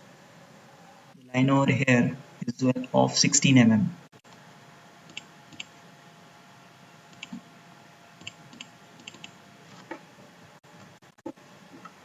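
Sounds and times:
computer mouse clicks: 5.1s - 5.7s, 7.1s - 7.4s, 8.2s - 9.4s.

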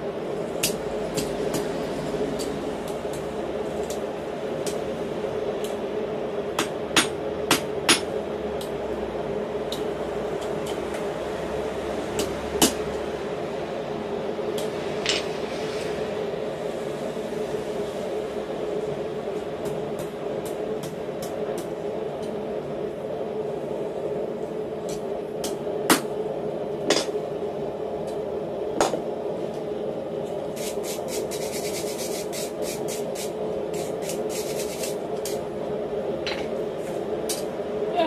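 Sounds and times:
steady hum: 0.0s - 38.0s
hammer striking hot steel: 6.6s - 8.2s.

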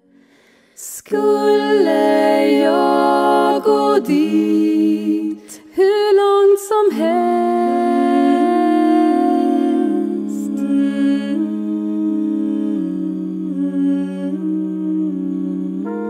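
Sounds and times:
singers breathing: 0.1s - 1.0s, 5.4s - 5.8s
women singing in close harmony: 0.8s - 16.0s.

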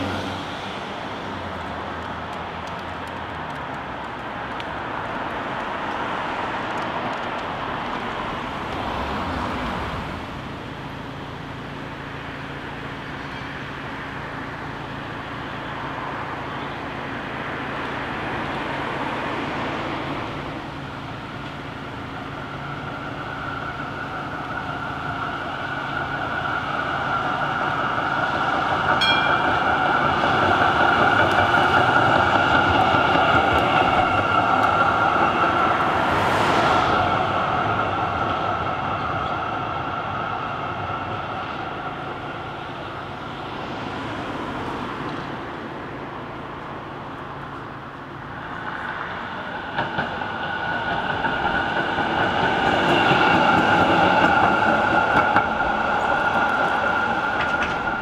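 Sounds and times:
cars passing: 0.0s - 58.0s
tram approaching: 0.0s - 58.0s
steady high whine: 19.9s - 43.8s.

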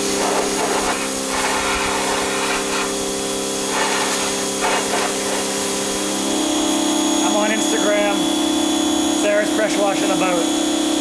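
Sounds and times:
pressure washer spray hissing: 0.0s - 8.4s
steady hum: 0.0s - 11.0s.

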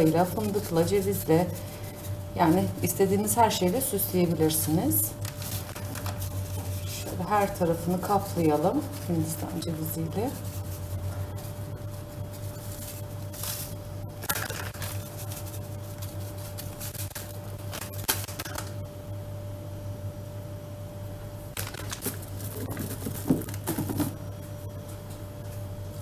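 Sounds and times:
plastic packet crinkling: 0.0s - 9.2s, 12.3s - 18.7s, 21.6s - 24.1s
steady low hum: 0.0s - 26.0s.

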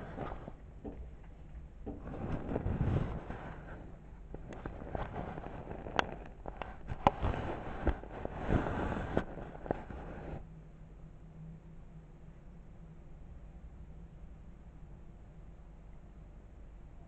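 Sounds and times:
fabric rustling: 0.0s - 10.4s.

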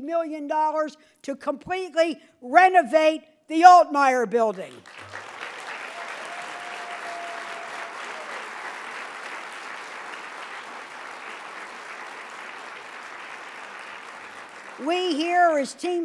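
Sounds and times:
audience clapping: 4.7s - 15.7s.

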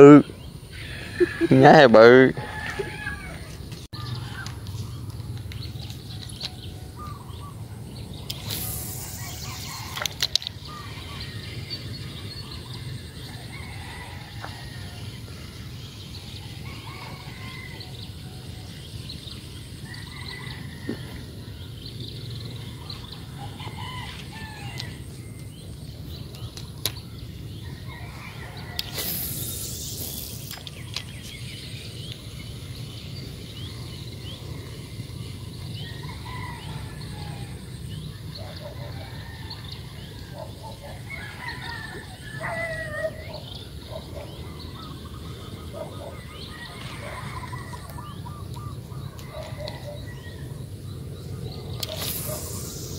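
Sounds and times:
bird calls: 0.0s - 15.1s, 19.4s - 52.9s
brief hiss: 8.3s - 10.0s, 28.8s - 30.8s, 51.8s - 52.9s
steady low rumble: 29.2s - 38.4s.

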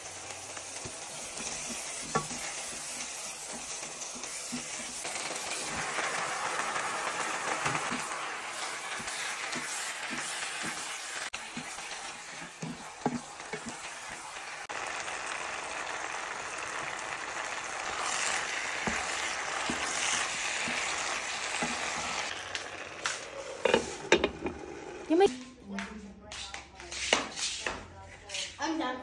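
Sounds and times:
food sizzling in frying pan: 0.0s - 25.3s.

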